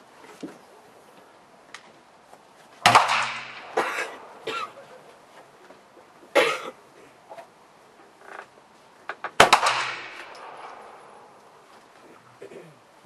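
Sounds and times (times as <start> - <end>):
pistol shots echoing: 2.8 - 4.5, 9.4 - 11.4.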